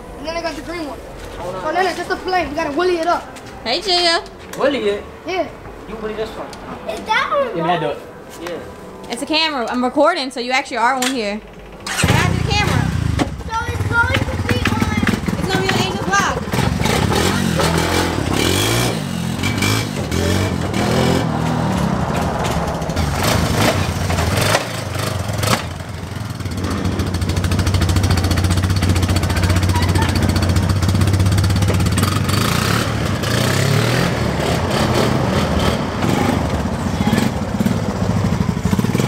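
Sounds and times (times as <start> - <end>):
quad bike engines running: 11.4 - 39.0.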